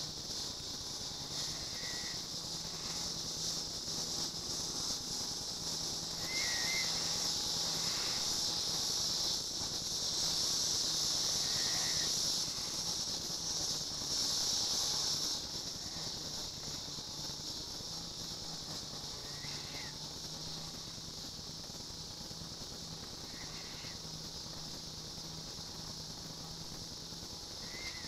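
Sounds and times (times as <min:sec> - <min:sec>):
insects buzzing: 0:00.0 - 0:28.0.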